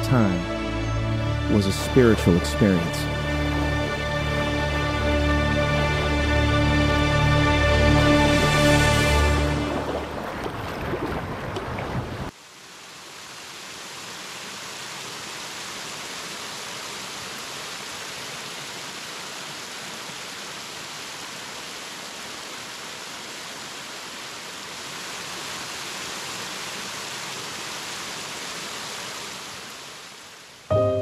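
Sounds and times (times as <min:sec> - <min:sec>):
waterfall splashing into pool: 0:09.1 - 0:30.7.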